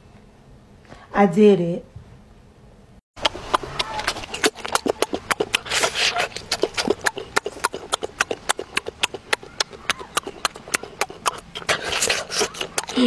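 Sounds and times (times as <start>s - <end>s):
mouth clicks of chewing: 3.2s - 13.0s.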